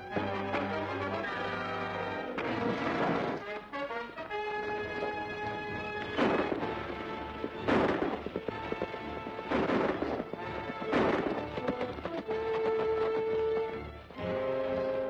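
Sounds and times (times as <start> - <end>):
background music with held notes: 0.0 - 15.0
gunshots with echo: 6.0 - 13.2.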